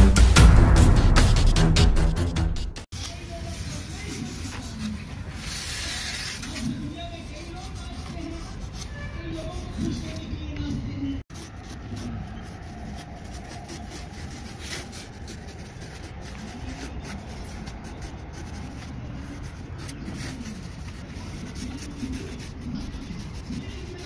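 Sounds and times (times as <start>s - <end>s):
pencil scratching on foam: 2.9s - 10.4s, 11.2s - 24.0s.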